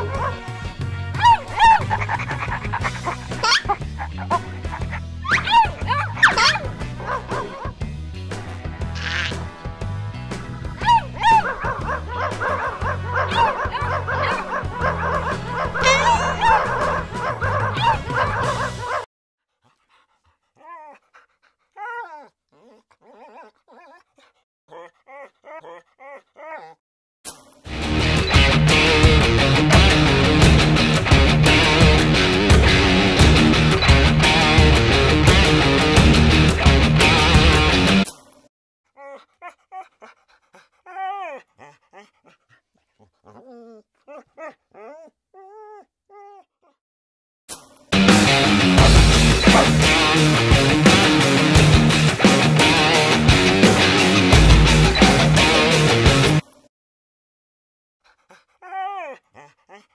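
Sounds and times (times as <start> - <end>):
music: 0.0 - 19.0, 27.7 - 38.1, 48.0 - 56.4
dog whining: 15.6 - 17.1, 21.8 - 24.0, 24.7 - 26.8, 43.0 - 46.5, 58.6 - 59.9.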